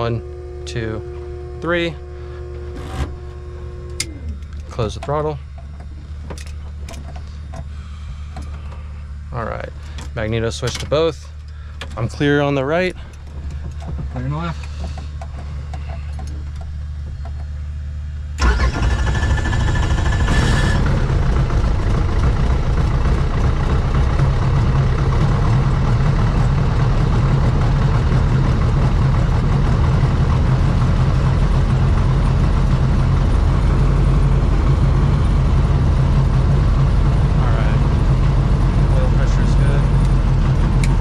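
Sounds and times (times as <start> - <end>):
high whine: 0.0 - 41.0
helicopter engine starting: 18.4 - 41.0.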